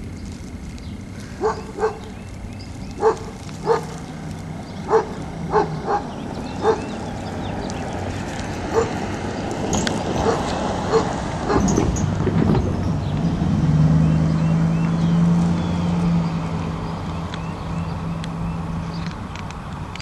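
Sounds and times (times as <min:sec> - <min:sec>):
dog barking: 0:01.4 - 0:02.2, 0:03.0 - 0:04.0, 0:04.9 - 0:06.9, 0:08.7 - 0:09.0, 0:10.2 - 0:11.8.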